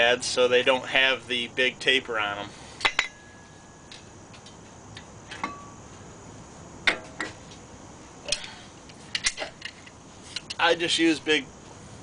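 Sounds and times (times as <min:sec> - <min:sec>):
metallic clinks of brake tools: 0:02.8 - 0:04.5.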